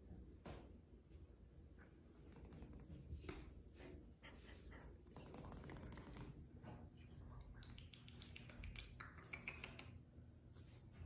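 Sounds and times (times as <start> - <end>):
kittens tapping and clicking: 5.1 - 6.4, 7.5 - 10.0.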